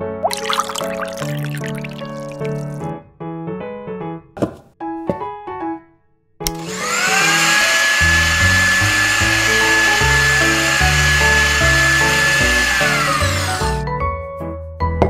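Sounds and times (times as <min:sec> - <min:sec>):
blender motor whining: 0:06.5 - 0:13.8.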